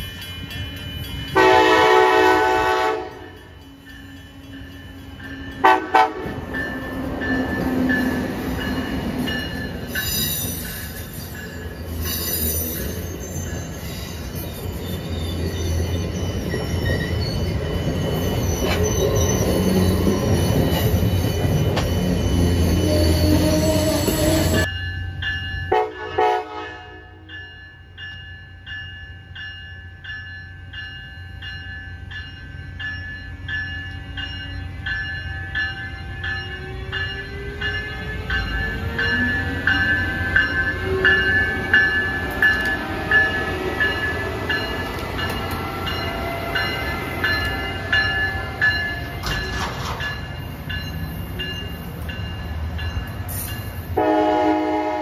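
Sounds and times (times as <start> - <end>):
train horn: 1.3 - 3.4, 5.6 - 6.5, 25.7 - 27.3, 54.0 - 55.0
warning bell ringing: 15.7 - 54.0
train wheels rumbling: 34.6 - 55.0.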